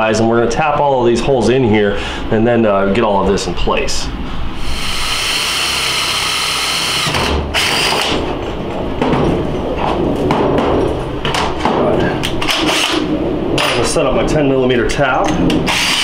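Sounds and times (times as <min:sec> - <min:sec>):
drill boring through metal: 0:04.6 - 0:08.1, 0:15.7 - 0:16.0.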